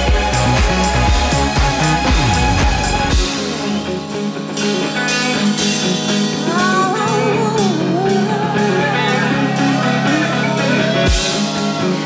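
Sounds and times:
sustained bass notes: 0:00.0 - 0:12.0
person singing: 0:06.4 - 0:12.0.

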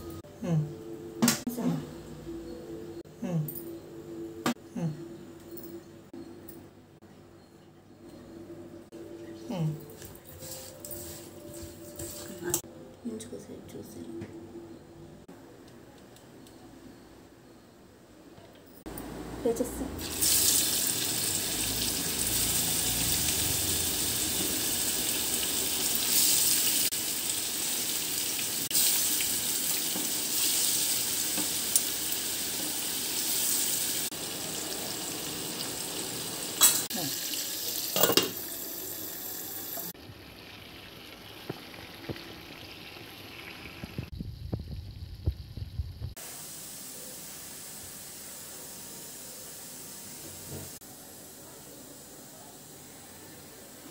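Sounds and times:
fish sizzling in frying pan: 0:20.0 - 0:50.0.

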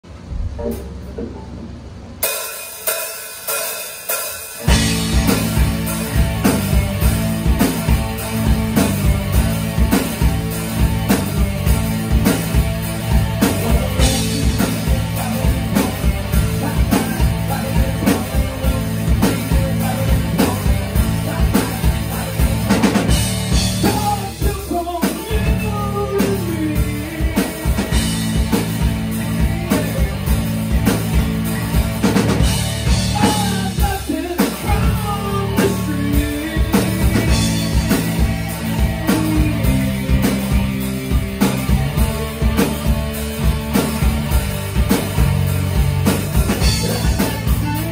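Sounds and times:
live rock band playing: 0:00.0 - 0:47.9
man singing: 0:13.4 - 0:28.6, 0:29.2 - 0:30.5, 0:32.9 - 0:40.5, 0:46.1 - 0:47.9.

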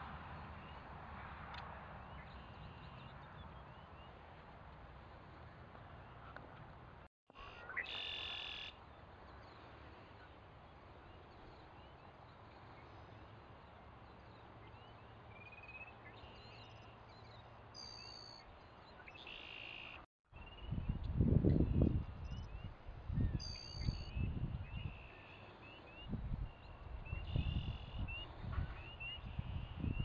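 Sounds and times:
sparrow singing buzzy song: 0:07.4 - 0:30.0.

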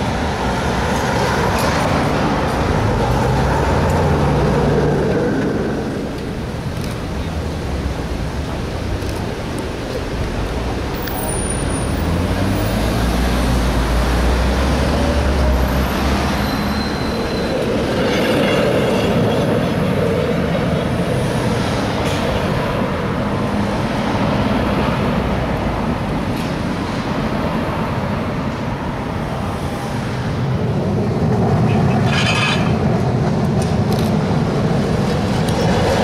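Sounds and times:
city traffic: 0:00.0 - 0:36.0
streetcar rumbling on rails: 0:00.0 - 0:36.0
wheel squeal: 0:16.2 - 0:19.5, 0:31.8 - 0:32.8.

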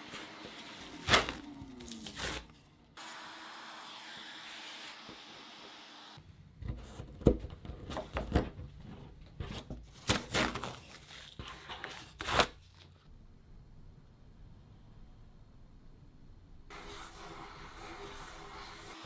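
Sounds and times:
tape tearing from board: 0:01.0 - 0:02.6, 0:10.0 - 0:12.6
shop vacuum sucking dust: 0:03.0 - 0:06.2, 0:16.7 - 0:19.0.

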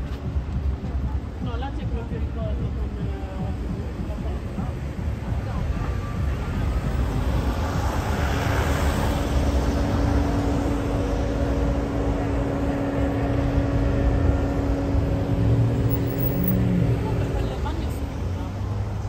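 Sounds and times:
engine hum: 0:00.0 - 0:19.0
low rumble of traffic: 0:00.0 - 0:19.0
vehicle passing: 0:06.2 - 0:19.0.

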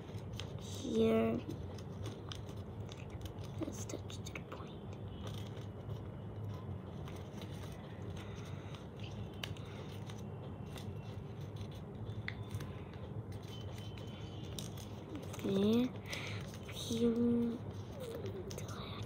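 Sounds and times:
paper folding and rustling: 0:00.0 - 0:19.0.

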